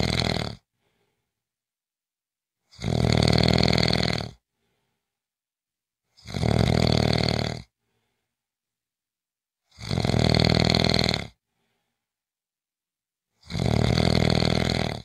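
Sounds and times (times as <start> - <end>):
person snoring: 0.0 - 1.0, 2.6 - 4.4, 6.1 - 7.8, 9.7 - 11.4, 13.3 - 15.0.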